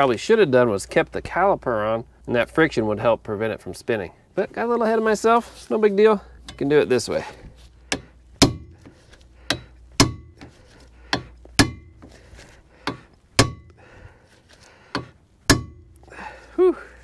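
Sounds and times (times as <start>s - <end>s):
metallic ringing: 6.4s - 7.0s, 11.1s - 12.2s, 12.8s - 13.8s, 15.0s - 16.1s
sledgehammer striking metal driver: 7.9s - 12.1s, 12.8s - 13.8s, 14.9s - 16.0s.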